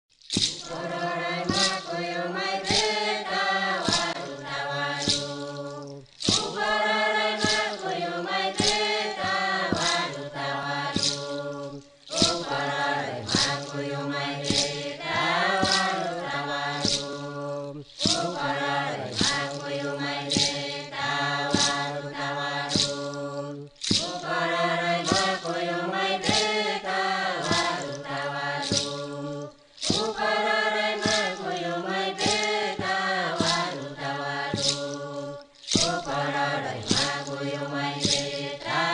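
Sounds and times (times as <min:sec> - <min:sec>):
sharp percussive beat: 0:00.2 - 0:38.9
group of voices chanting: 0:00.7 - 0:05.7, 0:06.3 - 0:38.9.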